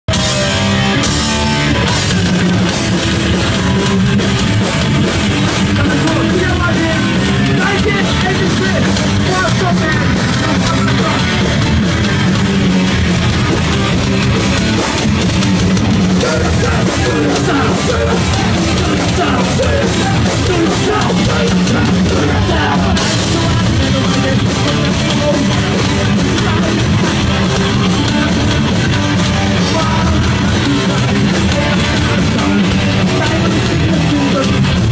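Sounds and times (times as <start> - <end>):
distorted electric guitar: 0.0 - 34.9
drum kit: 0.1 - 34.9
person singing: 5.4 - 11.5, 16.1 - 34.9.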